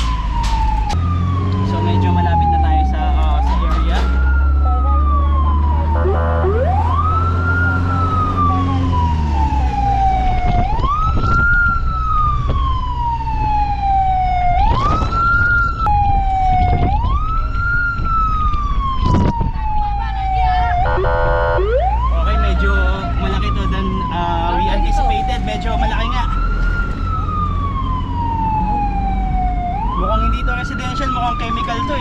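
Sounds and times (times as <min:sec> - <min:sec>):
emergency siren wailing: 0:00.0 - 0:32.0
engine and road rumble: 0:00.0 - 0:32.0
buzzing horn blast: 0:05.9 - 0:06.7, 0:20.8 - 0:21.7.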